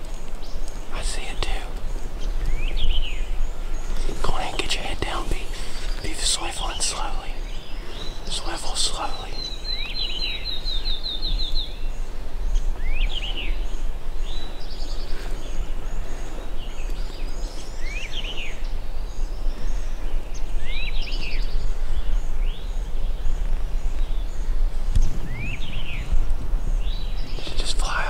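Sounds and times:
songbirds singing: 0:00.0 - 0:28.0
steady low rumble: 0:21.6 - 0:28.0.

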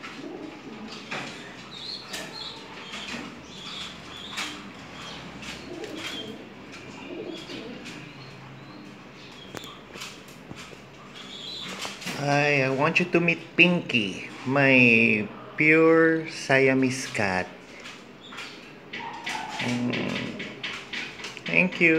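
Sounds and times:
dove cooing: 0:00.0 - 0:10.0, 0:18.4 - 0:21.2
birds chirping: 0:00.0 - 0:21.9
sharp taps and knocks: 0:18.3 - 0:21.9.

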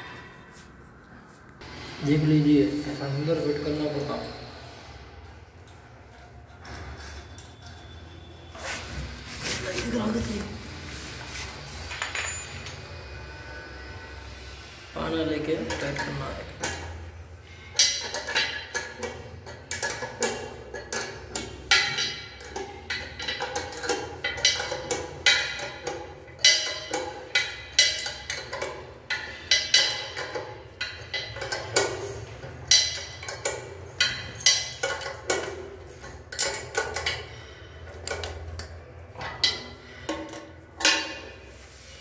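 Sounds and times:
metal spanner clinking: 0:11.8 - 0:13.1, 0:15.6 - 0:41.6.

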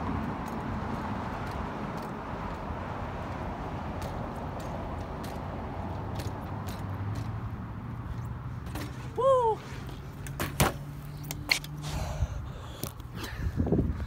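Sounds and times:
bike tyres rolling on concrete: 0:00.0 - 0:14.0
bike landing on concrete: 0:08.6 - 0:09.2, 0:10.1 - 0:11.7.

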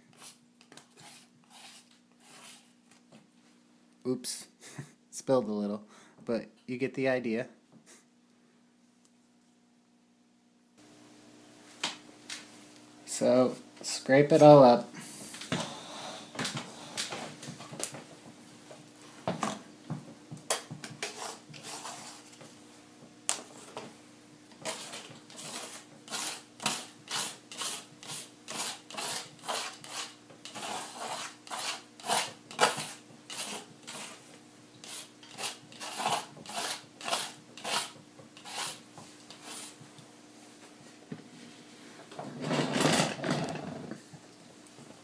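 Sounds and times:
palette knife scraping paint: 0:00.1 - 0:02.8, 0:21.0 - 0:22.4, 0:24.6 - 0:34.2, 0:34.8 - 0:39.8.

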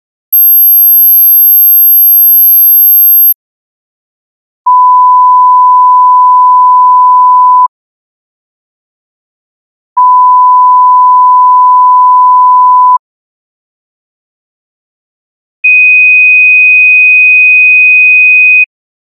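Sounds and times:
very high sine tone: 0:00.4 - 0:03.4.

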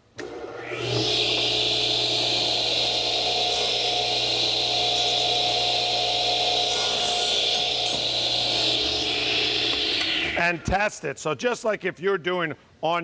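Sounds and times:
radial arm saw running: 0:00.2 - 0:10.4.

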